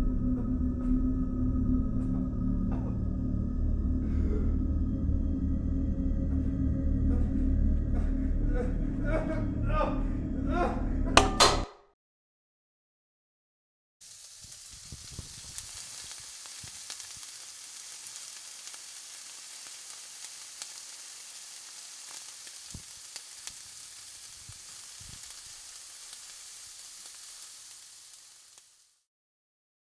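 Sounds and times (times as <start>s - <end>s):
crackling hiss with pops: 14.0s - 29.1s.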